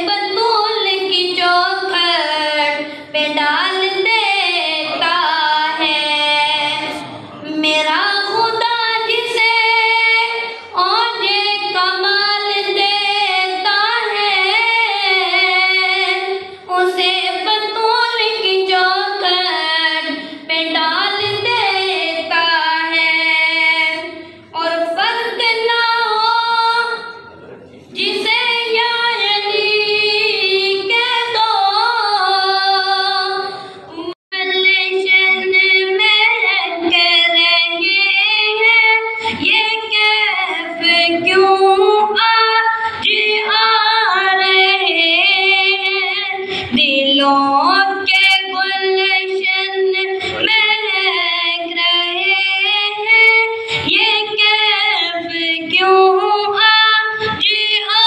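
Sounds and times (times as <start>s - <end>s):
boy singing into a microphone: 0.0s - 58.0s.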